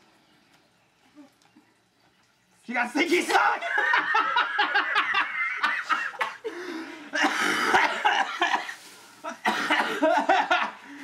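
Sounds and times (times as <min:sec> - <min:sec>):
person laughing: 0:03.6 - 0:11.0
person coughing: 0:07.2 - 0:08.3, 0:09.4 - 0:10.1.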